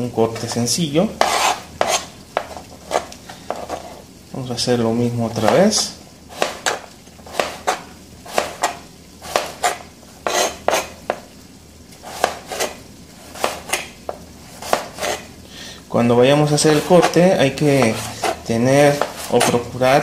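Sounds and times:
knife slicing carrot: 0:01.2 - 0:04.0, 0:05.4 - 0:11.3, 0:12.0 - 0:15.3, 0:16.5 - 0:19.8
blade knocking on cutting board: 0:06.4 - 0:11.3, 0:17.8 - 0:19.6.

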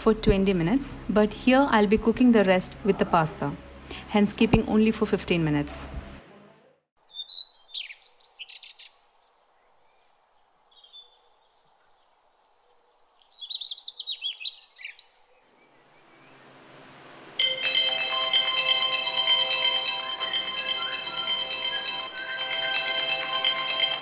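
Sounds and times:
faint outdoor background: 0:00.0 - 0:24.0
birds chirping: 0:07.0 - 0:16.6, 0:19.0 - 0:24.0
music: 0:17.4 - 0:24.0.

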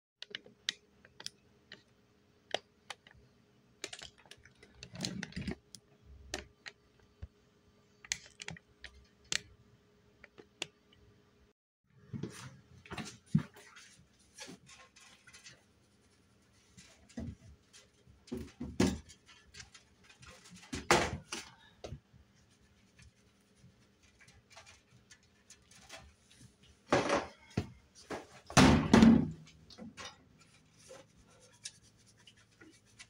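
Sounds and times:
containers thumping on oven door: 0:28.2 - 0:29.4.

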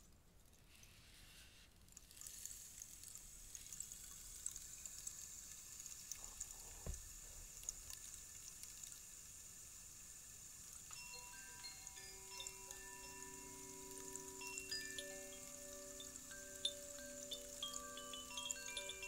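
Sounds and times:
rainstick trickling: 0:00.4 - 0:19.0
chime ringing: 0:10.9 - 0:19.0.

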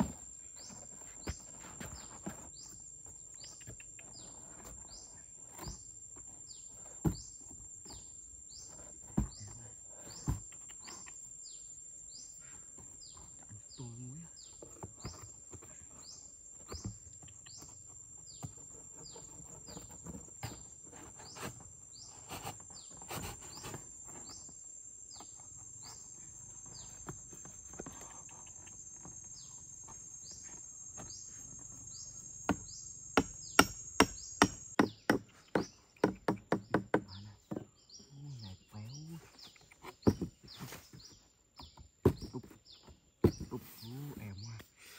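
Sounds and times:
high insect drone: 0:01.0 - 0:41.1
knife chopping bamboo: 0:32.5 - 0:37.6.

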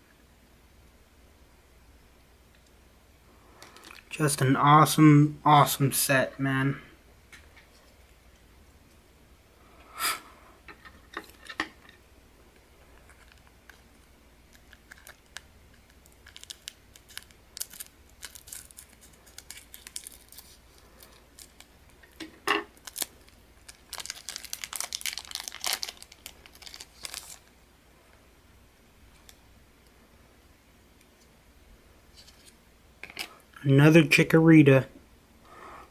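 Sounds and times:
foil wrapper crinkling: 0:13.0 - 0:27.6.

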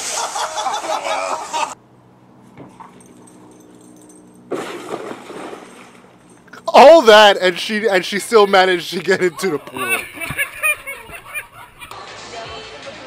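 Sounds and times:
people laughing: 0:00.0 - 0:01.8, 0:06.8 - 0:12.0
faint hum: 0:01.2 - 0:12.0
water splashing: 0:04.5 - 0:11.4.

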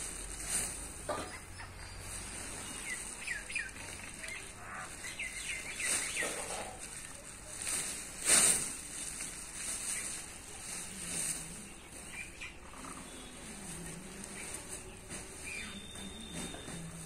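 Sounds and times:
hands rustling through fur: 0:00.0 - 0:12.1
faint bird chirps: 0:09.9 - 0:17.0.

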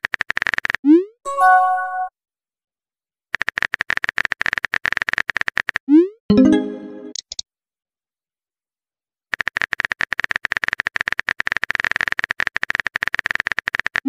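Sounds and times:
keyboard typing clicks: 0:06.3 - 0:07.4.

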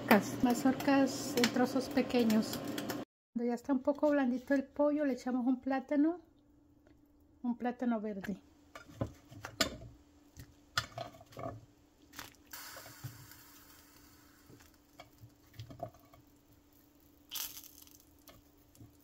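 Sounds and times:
food splashing into pot: 0:12.1 - 0:19.0.

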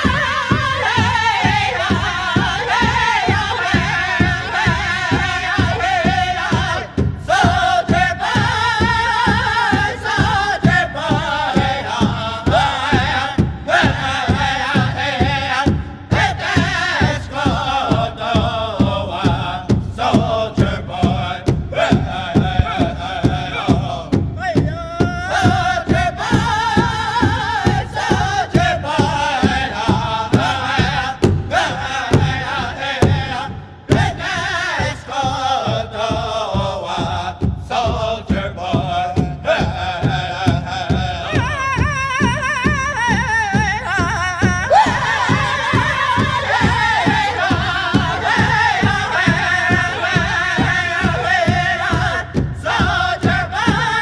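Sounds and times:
steady drum beat: 0:00.0 - 0:54.0
person singing: 0:39.4 - 0:52.1.

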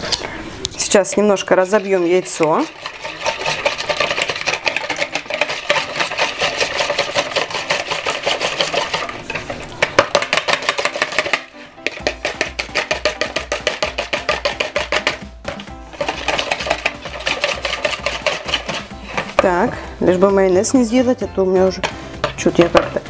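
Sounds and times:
whisk beating egg in bowl: 0:00.8 - 0:19.7.

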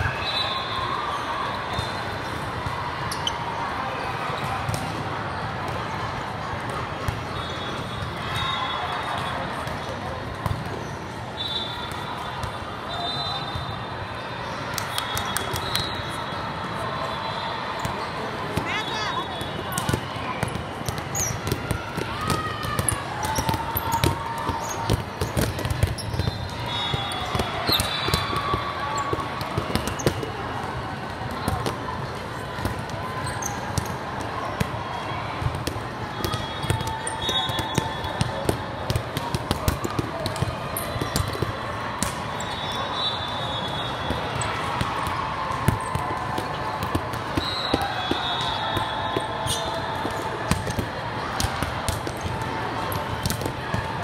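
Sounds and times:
chatter of people: 0:00.0 - 0:54.0
sneakers squeaking: 0:00.1 - 0:02.4, 0:03.0 - 0:03.5, 0:17.2 - 0:30.4, 0:31.4 - 0:34.8, 0:35.4 - 0:53.8
volleyballs hit and bouncing: 0:04.2 - 0:13.7, 0:14.4 - 0:16.2, 0:17.7 - 0:54.0.

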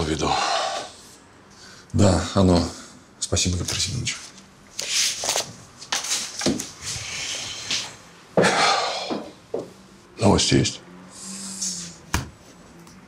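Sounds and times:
clothes and papers rustling: 0:03.4 - 0:08.0.

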